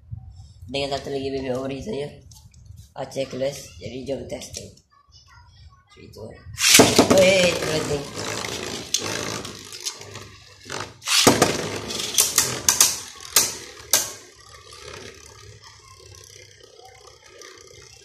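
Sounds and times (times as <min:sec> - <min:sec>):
spinning tops clashing clicks: 0:06.6 - 0:07.4, 0:11.0 - 0:14.3
launcher ratcheting rush: 0:06.6 - 0:18.0
spinning tops whirring: 0:06.6 - 0:18.0.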